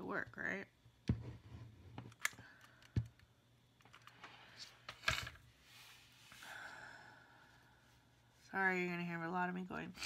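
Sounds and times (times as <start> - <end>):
wooden sticks set on tabletop: 4.2 - 6.4.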